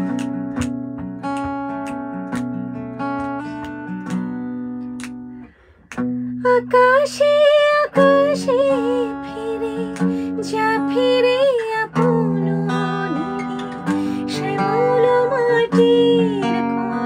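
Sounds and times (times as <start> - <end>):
acoustic guitar plucked notes: 0.0 - 17.0
woman singing: 6.4 - 17.0.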